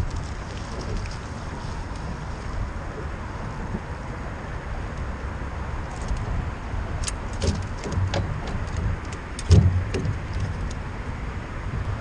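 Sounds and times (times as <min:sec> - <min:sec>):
boat engine rumble: 0:00.0 - 0:12.0
sharp knocks and clicks: 0:07.0 - 0:10.8.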